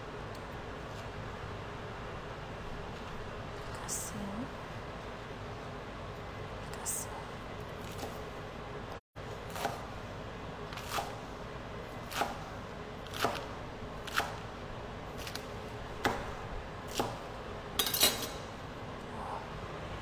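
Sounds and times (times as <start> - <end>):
knife chopping on cutting board: 9.5 - 9.9, 10.8 - 11.2, 12.1 - 14.4, 15.2 - 17.2.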